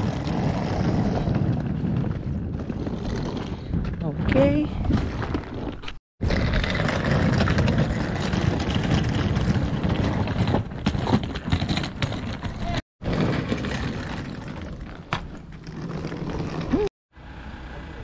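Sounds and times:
suitcase wheels rolling on paving: 0.0s - 16.9s
outdoor noise: 0.0s - 18.0s.

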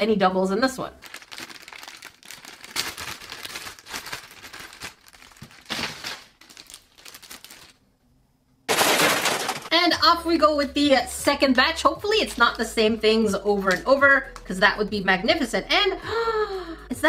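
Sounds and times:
plastic bag crinkling: 1.0s - 7.8s, 8.7s - 9.7s.

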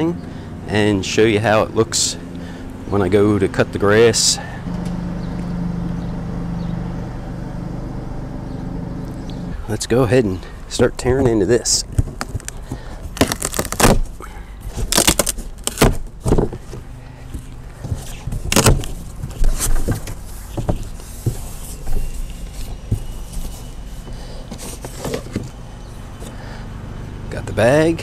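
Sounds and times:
steady low hum: 0.0s - 28.0s
cardboard flaps scraping: 11.3s - 25.6s
packing tape tearing: 12.0s - 16.4s, 18.3s - 19.9s.

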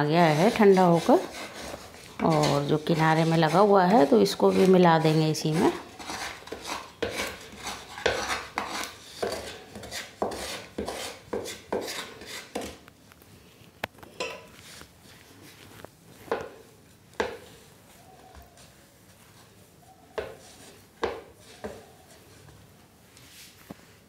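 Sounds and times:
spatula scraping frying pan: 0.0s - 12.8s, 20.2s - 22.4s.

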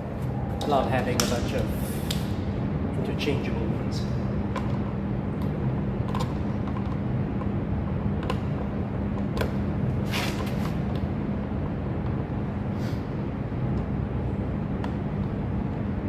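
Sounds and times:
low mechanical hum: 0.0s - 16.0s
short scrape: 10.0s - 10.7s.

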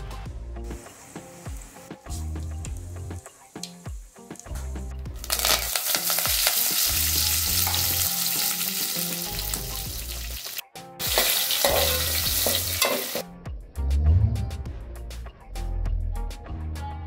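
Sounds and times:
leaves and chillies sizzling in oil: 0.7s - 13.2s.

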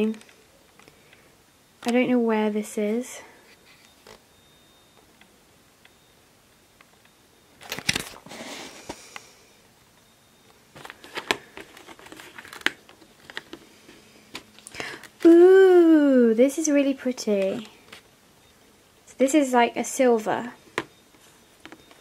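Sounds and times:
cardboard packaging rustling: 7.6s - 9.0s, 10.7s - 15.3s.

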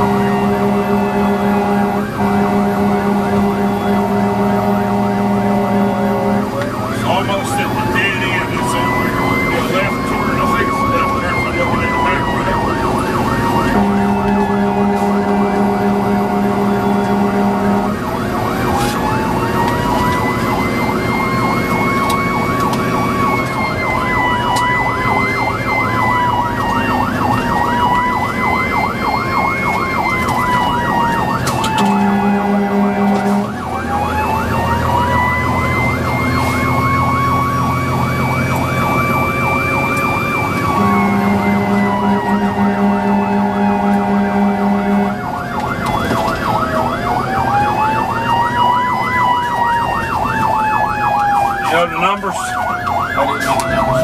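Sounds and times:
air horn blasts: 0.0s - 12.5s, 13.4s - 23.7s, 31.4s - 33.6s, 40.4s - 45.4s
fire engine siren wailing: 0.0s - 54.0s.

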